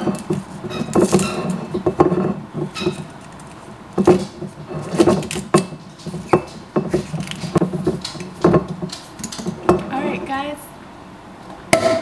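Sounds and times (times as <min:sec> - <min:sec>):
foil crinkling: 0:06.9 - 0:09.6.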